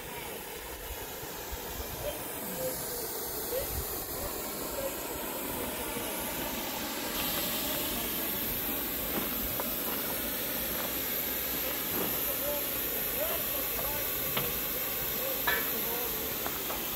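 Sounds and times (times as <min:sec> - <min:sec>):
steam locomotive venting steam: 0:00.0 - 0:16.9.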